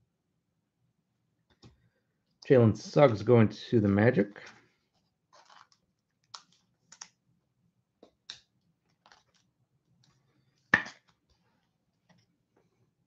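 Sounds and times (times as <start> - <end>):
cards clicking and rustling: 5.4 - 7.1, 8.9 - 10.2.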